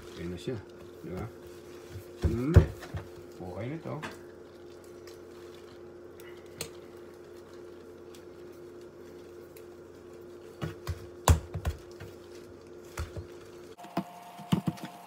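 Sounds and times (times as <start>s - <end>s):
steady hum: 0.0s - 15.0s
dough knocking on countertop: 10.6s - 12.1s.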